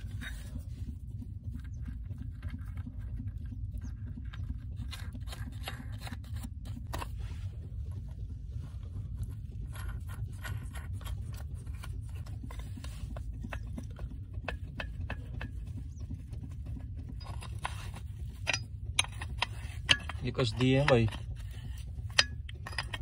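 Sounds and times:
steady low rumble: 0.0 - 23.0
metal nuts clicking and scraping: 9.2 - 15.8, 16.6 - 23.0.

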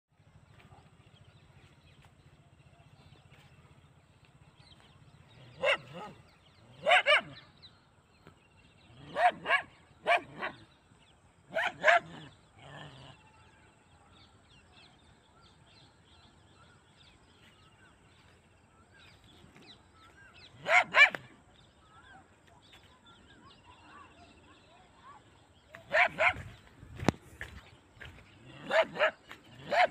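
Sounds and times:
dog barking sharply: 20.6 - 21.3, 25.9 - 26.4, 28.6 - 29.9.

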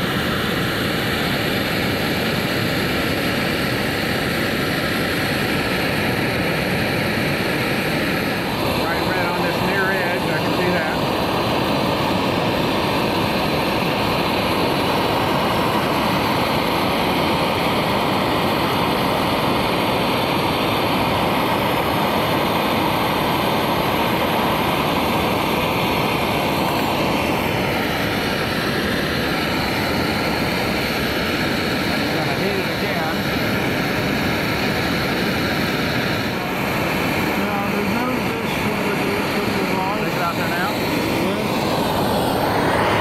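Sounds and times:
gas torch flame rushing: 0.0 - 43.0.

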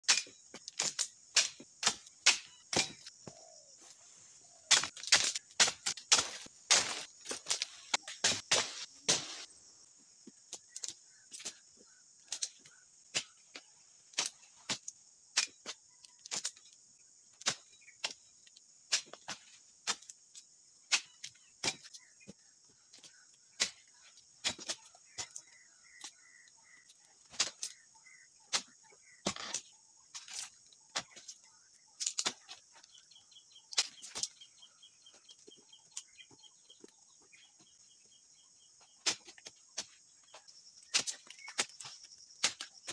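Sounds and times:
chisel chopping palm fronds: 0.0 - 3.1, 4.6 - 9.5, 12.3 - 16.6, 17.4 - 18.3, 20.9 - 22.2, 23.0 - 31.3, 38.8 - 42.9
insect drone: 0.2 - 42.9.

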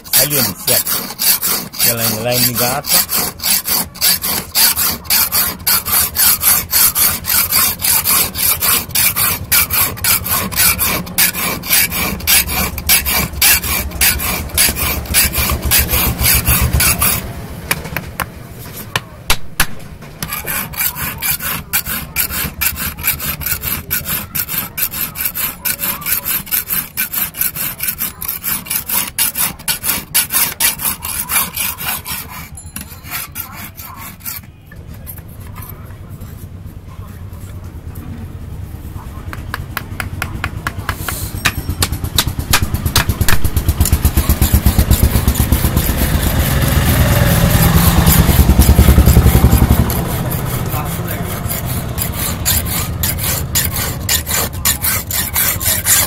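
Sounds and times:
file rasping on steel blade: 0.0 - 18.9, 20.2 - 35.8, 40.2 - 56.0.

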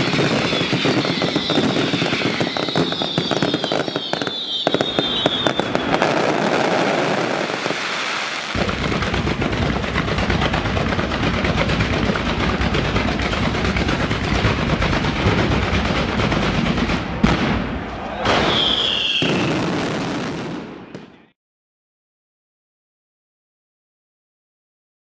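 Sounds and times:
falling firework whistle: 0.0 - 9.0, 17.2 - 21.3
deep firework bangs: 0.0 - 21.1
fireworks crackling: 0.0 - 21.3.

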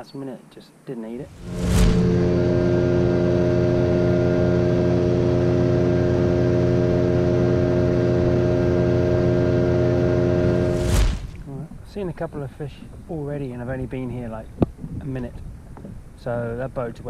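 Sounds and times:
outboard motor droning: 1.6 - 11.1.

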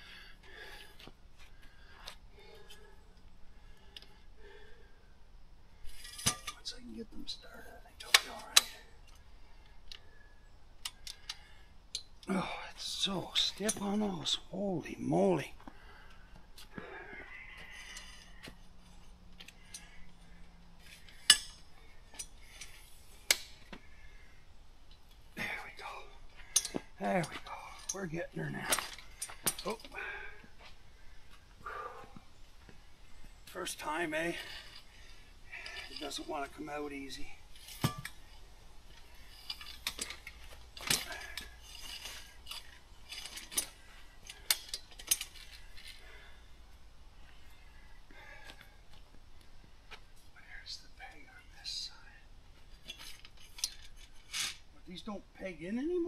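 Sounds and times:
metal frame clinking and rattling: 5.8 - 6.8, 17.7 - 23.7, 26.3 - 30.4, 33.5 - 46.2, 52.6 - 54.7.

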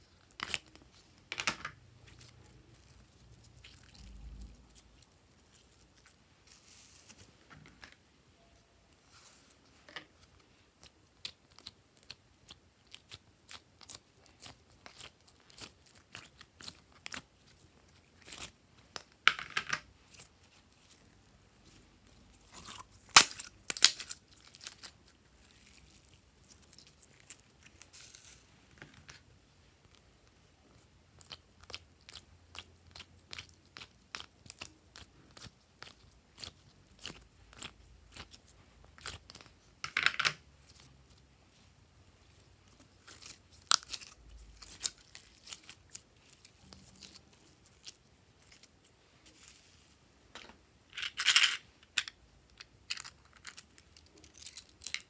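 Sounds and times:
slime crackling: 40.6 - 49.7.

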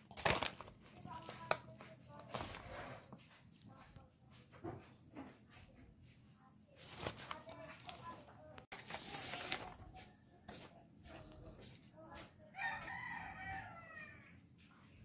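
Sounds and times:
bubble wrap crinkling: 0.0 - 3.1, 6.8 - 9.9
rooster crowing: 12.6 - 14.3.

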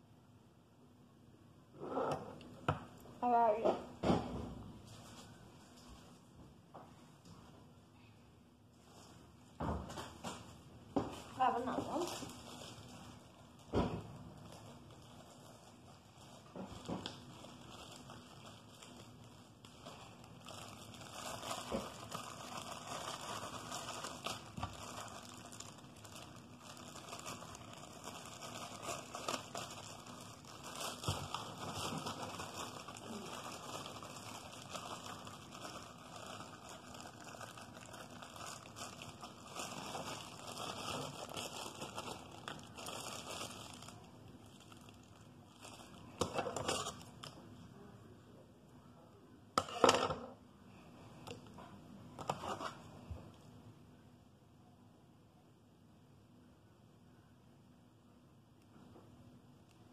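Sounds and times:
plastic icing bag crinkling: 8.5 - 47.8.

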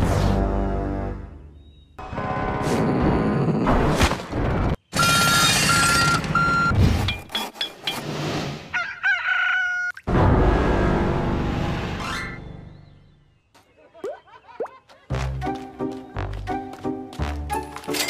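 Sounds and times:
rooster crowing: 8.7 - 9.9.

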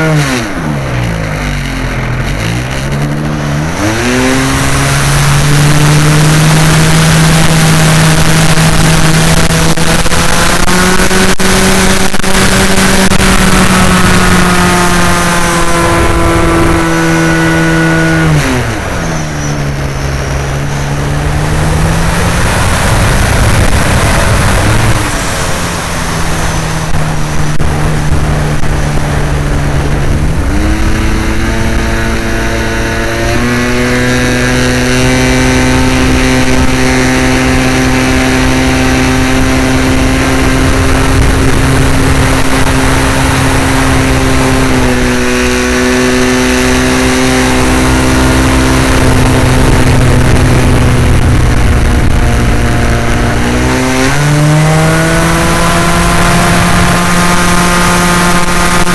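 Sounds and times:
air rushing over camera: 13.0 - 34.9.

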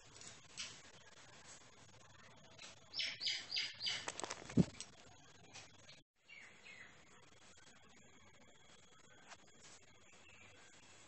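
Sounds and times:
young bird chirping: 2.9 - 4.1.

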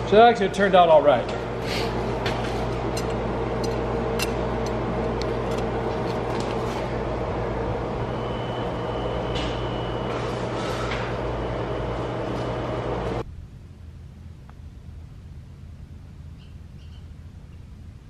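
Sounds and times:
motor humming: 1.2 - 13.2.

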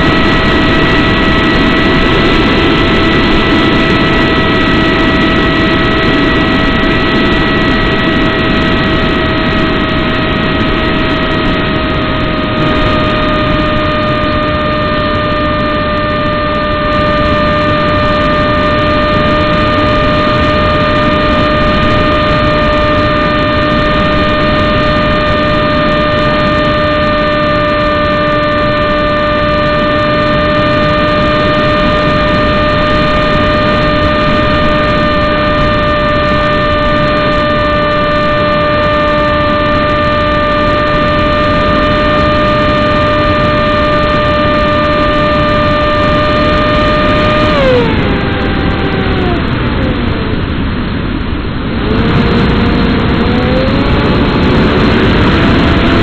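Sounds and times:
electric motor and propeller whine: 0.0 - 56.0
rushing air: 0.0 - 56.0.

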